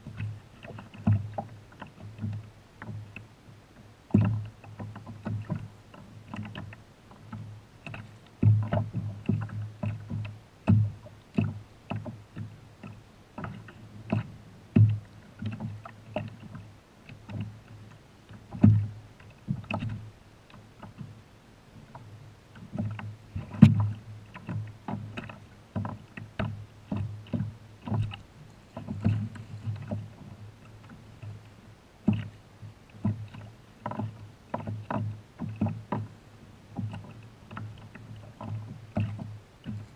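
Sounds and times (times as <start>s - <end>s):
water slapping kayak hull: 0.0s - 39.9s.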